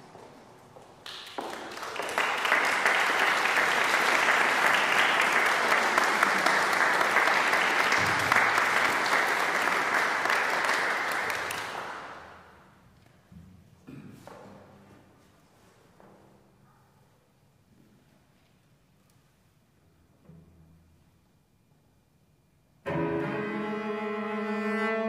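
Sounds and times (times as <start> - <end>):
audience applauding: 1.0 - 12.5.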